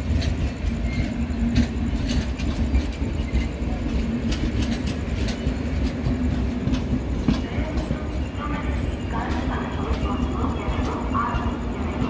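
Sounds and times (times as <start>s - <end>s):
wheels clicking over rail joints: 0.0s - 8.4s
train rumbling: 0.0s - 12.0s.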